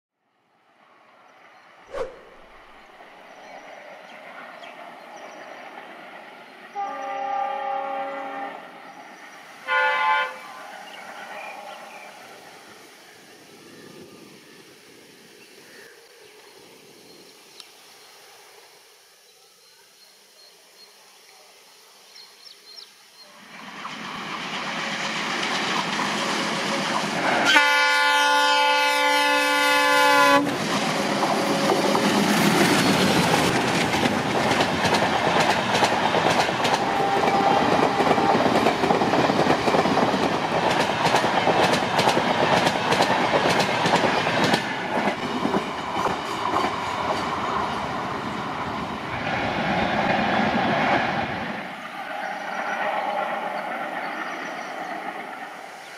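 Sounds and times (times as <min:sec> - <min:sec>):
locomotive horn: 0:06.7 - 0:08.7, 0:09.6 - 0:10.6, 0:27.4 - 0:30.6, 0:36.7 - 0:38.5
train wheels clattering on rails: 0:23.6 - 0:27.5, 0:30.4 - 0:51.4.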